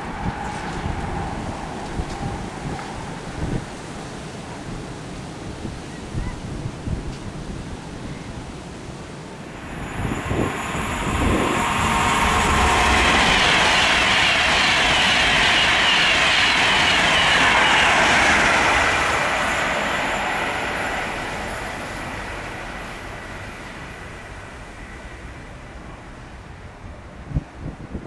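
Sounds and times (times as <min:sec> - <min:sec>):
train passing at speed: 0:00.0 - 0:28.0.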